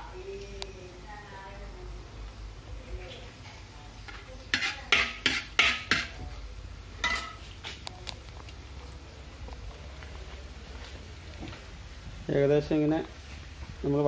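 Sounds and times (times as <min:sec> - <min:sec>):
spoon scraping a cooking pan: 0:03.4 - 0:06.3.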